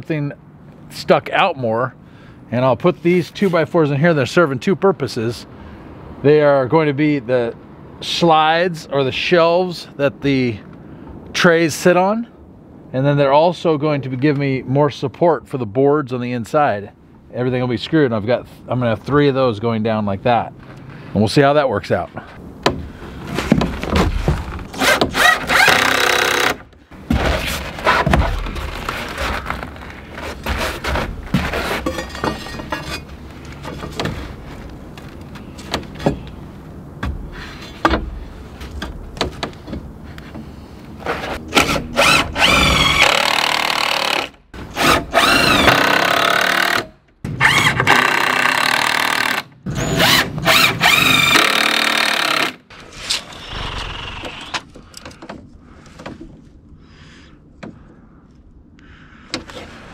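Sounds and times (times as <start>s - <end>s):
cordless drill whining: 41.6s - 46.8s, 53.1s - 54.6s.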